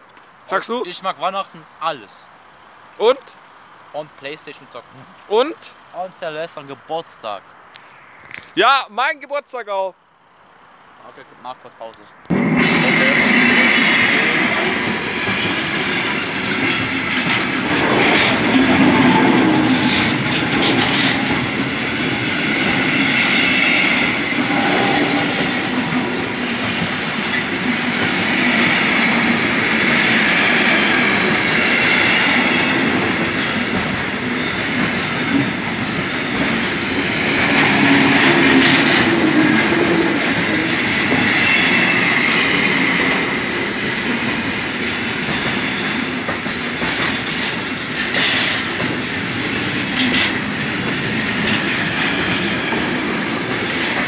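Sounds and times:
train wheels clattering over rails: 0:12.3 - 0:54.0.

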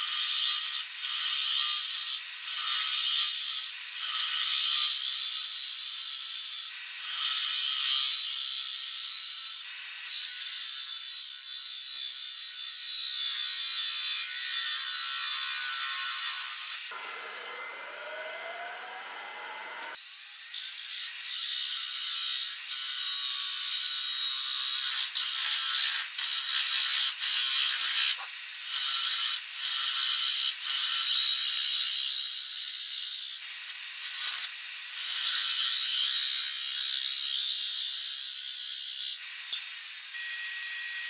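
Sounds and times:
lathe motor whine: 0:16.9 - 0:20.0.

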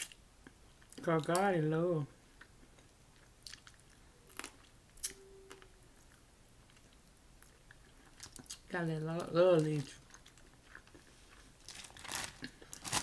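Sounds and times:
chewing: 0:02.4 - 0:08.7, 0:09.8 - 0:11.5.

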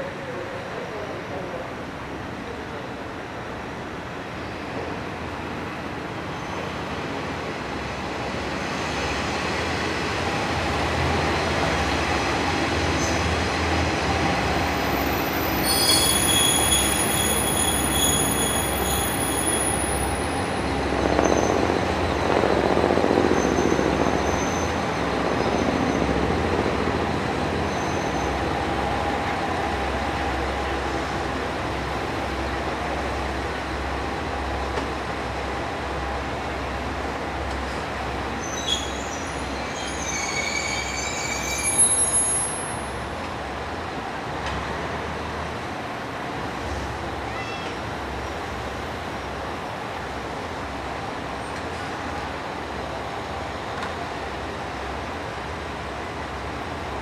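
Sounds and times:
train rumble: 0:00.0 - 0:57.0
wheels and brakes squealing: 0:14.7 - 0:21.7, 0:38.4 - 0:43.0.

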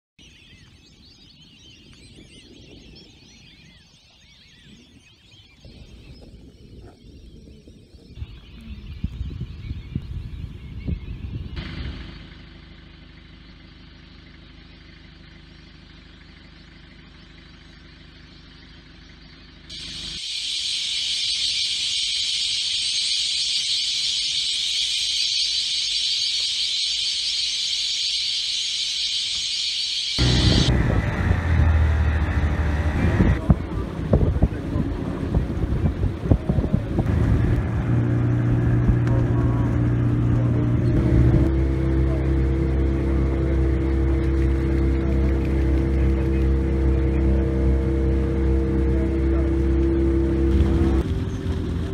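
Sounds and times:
ducks whistling: 0:13.0 - 0:33.4, 0:37.9 - 0:51.0
low rumbling noise: 0:30.2 - 0:51.9.

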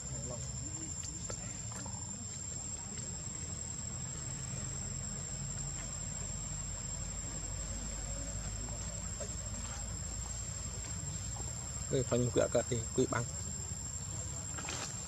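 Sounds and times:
insects droning: 0:00.0 - 0:15.0.

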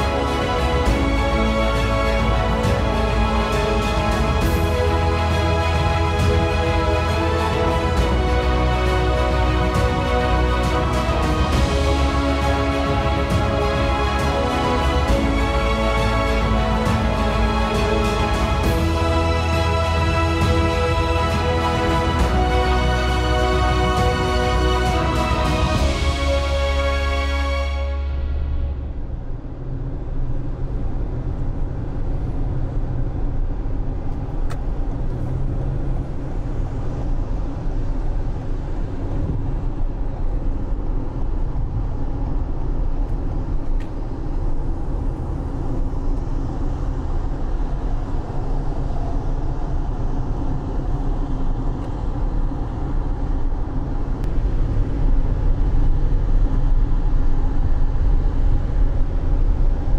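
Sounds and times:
car engine and tyres on wet road: 0:28.0 - 0:59.9.

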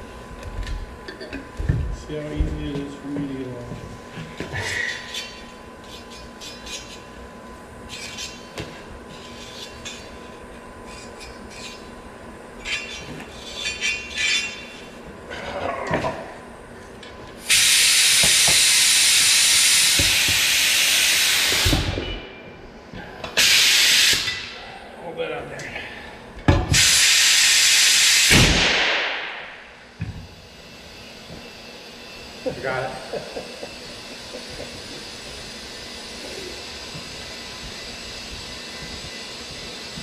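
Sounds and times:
compressed air hissing: 0:17.4 - 0:21.9, 0:23.4 - 0:24.8, 0:26.7 - 0:28.5
loud burst of air: 0:17.4 - 0:22.0, 0:23.4 - 0:24.6, 0:26.7 - 0:29.9.

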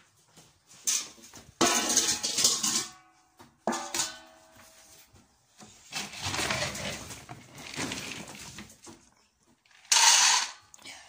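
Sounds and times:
metal dog bowls clanging on tiles: 0:00.9 - 0:04.5, 0:09.7 - 0:10.6
rough scraping rustle: 0:05.7 - 0:08.9.

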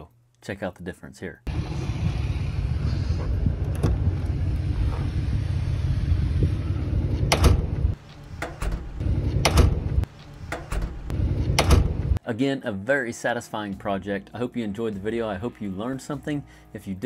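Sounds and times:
wind rumble on microphone: 0:01.5 - 0:08.0
steel door knocking shut: 0:08.4 - 0:12.2.

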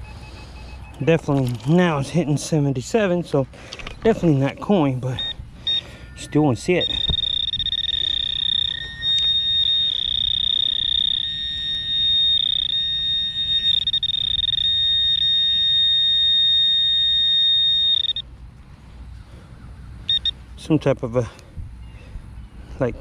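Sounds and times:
high-pitched alarm tone: 0:05.7 - 0:18.2, 0:20.1 - 0:20.3.

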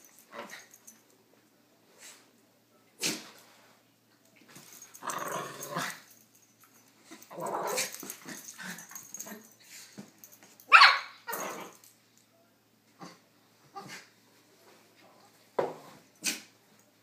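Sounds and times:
dogs growling: 0:04.9 - 0:06.1, 0:07.2 - 0:09.2
dog barks: 0:10.7 - 0:11.2.

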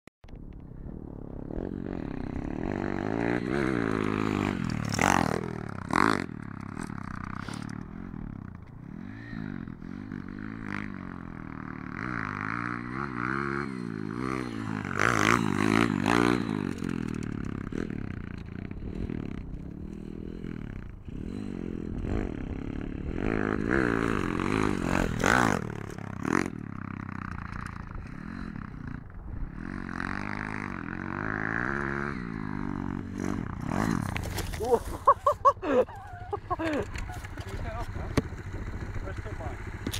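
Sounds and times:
motorbike engine revving: 0:01.4 - 0:39.9.

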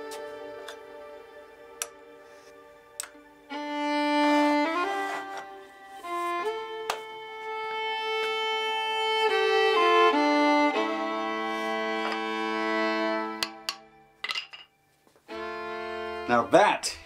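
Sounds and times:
fiddle playing slow held notes: 0:00.0 - 0:14.0, 0:15.2 - 0:17.0.

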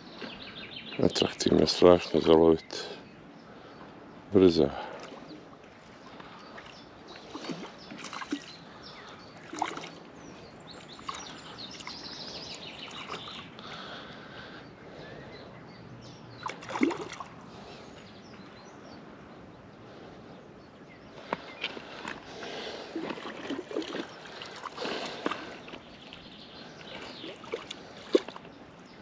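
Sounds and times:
water lapping: 0:04.6 - 0:15.5, 0:16.3 - 0:18.4, 0:21.1 - 0:29.0.

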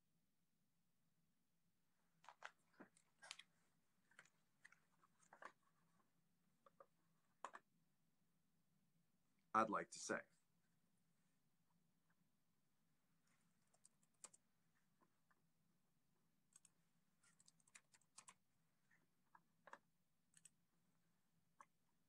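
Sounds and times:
typing on a keyboard: 0:13.6 - 0:14.4, 0:16.5 - 0:18.4, 0:19.3 - 0:20.6.

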